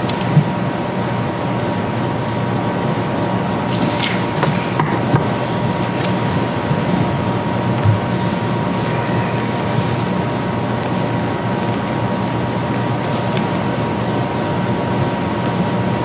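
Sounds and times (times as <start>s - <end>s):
low hum: 2.6s - 15.2s
thin high whine: 3.4s - 16.0s.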